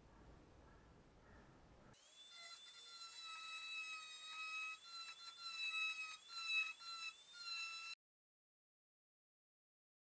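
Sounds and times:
rotary tool whining on metal: 2.0 - 8.0.

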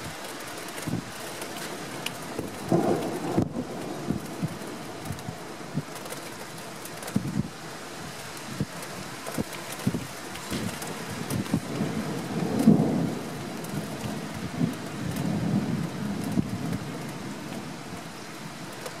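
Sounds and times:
rain falling: 0.0 - 19.0
thunder rumbling: 1.8 - 6.0, 10.5 - 18.7.

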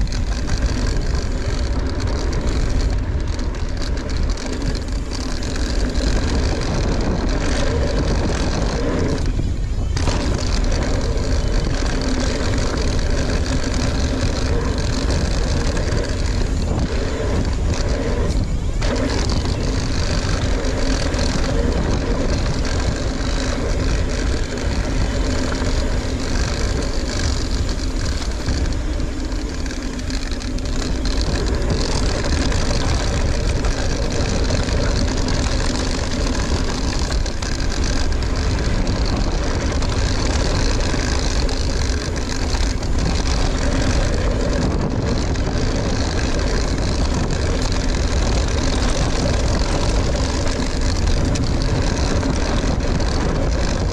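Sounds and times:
faint steady drone: 0.0 - 53.9
wind and tyre noise: 0.0 - 53.9.

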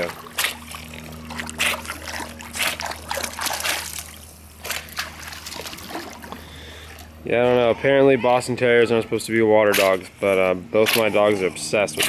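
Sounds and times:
water splashing and sloshing: 0.0 - 7.2, 9.7 - 12.0.

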